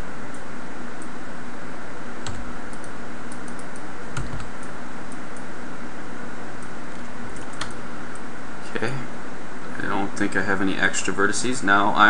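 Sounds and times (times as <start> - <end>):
computer mouse and keyboard clicks: 2.3 - 5.2, 6.9 - 7.8.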